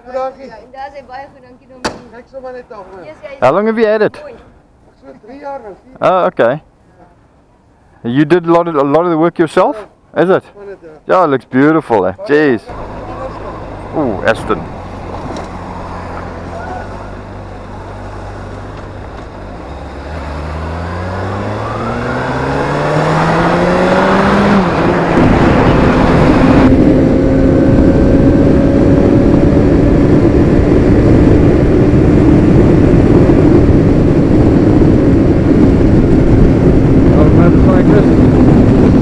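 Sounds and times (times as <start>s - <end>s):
motorcycle engine: 12.7s - 39.0s
wind noise: 12.7s - 39.0s.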